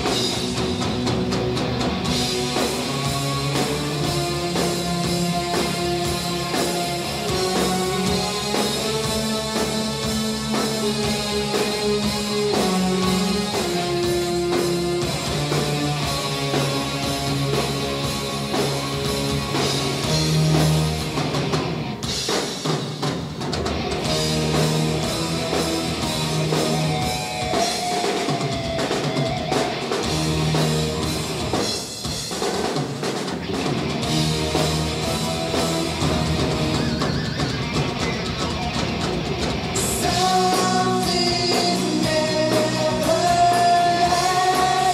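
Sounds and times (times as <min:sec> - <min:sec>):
bass guitar: 0:00.0 - 0:22.4, 0:23.4 - 0:32.2, 0:33.3 - 0:44.9
distorted electric guitar: 0:00.0 - 0:22.4, 0:23.5 - 0:32.1, 0:33.3 - 0:44.9
drum kit with cymbals: 0:00.0 - 0:44.9.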